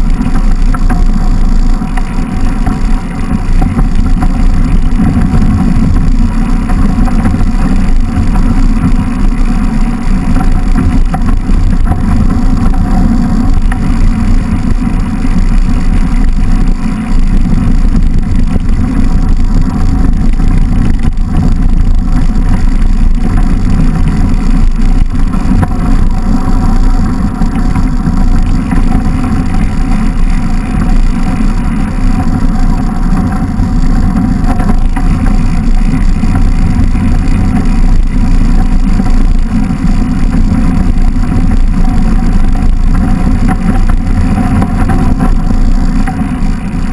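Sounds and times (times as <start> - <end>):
bike tyres rolling over snow: 0.0 - 46.9
wind buffeting microphone: 0.0 - 46.9.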